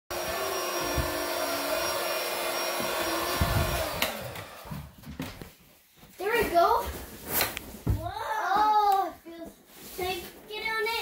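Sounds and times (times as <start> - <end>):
electric motor whirring: 0.1 - 4.7.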